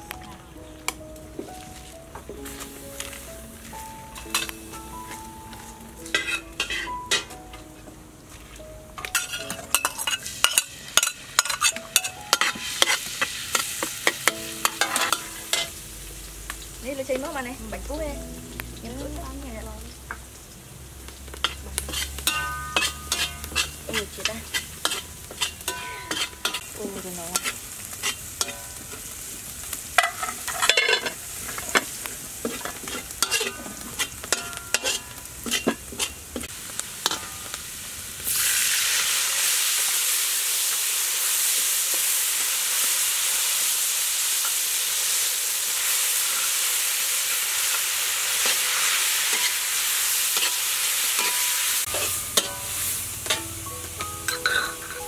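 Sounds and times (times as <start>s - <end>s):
squid sizzling in hot oil: 1.4s - 7.4s, 8.2s - 55.0s
metal spatula scraping a wok: 6.1s - 7.3s, 9.1s - 15.8s, 21.4s - 29.1s, 30.0s - 37.5s, 47.6s - 55.0s.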